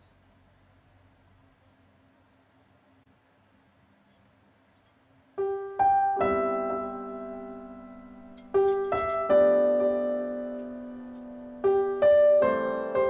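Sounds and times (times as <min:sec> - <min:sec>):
piano music: 0:05.4 - 0:13.0.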